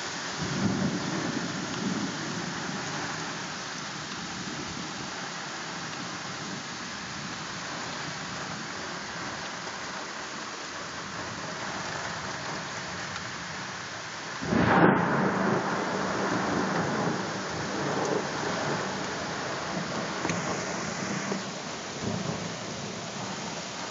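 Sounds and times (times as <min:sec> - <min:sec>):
rain hiss: 0:00.0 - 0:23.9
thunderclap rumbling: 0:14.4 - 0:21.4.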